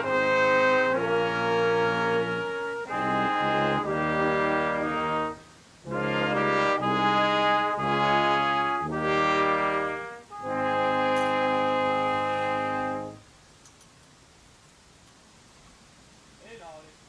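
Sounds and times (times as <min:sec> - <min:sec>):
brass ensemble playing chords: 0:00.0 - 0:13.3.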